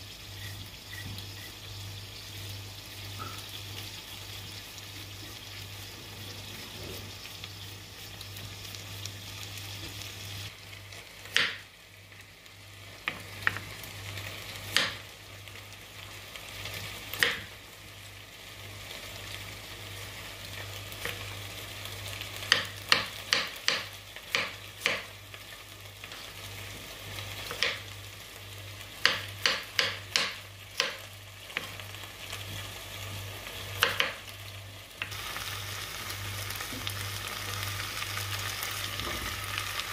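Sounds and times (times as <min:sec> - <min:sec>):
knife chopping on wooden board: 0:11.3 - 0:11.6, 0:29.0 - 0:31.0.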